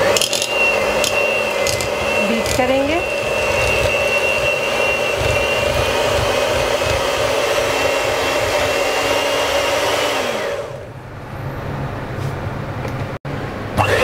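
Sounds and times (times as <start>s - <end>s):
electric hand mixer whirring: 0.0s - 10.8s, 13.7s - 14.0s.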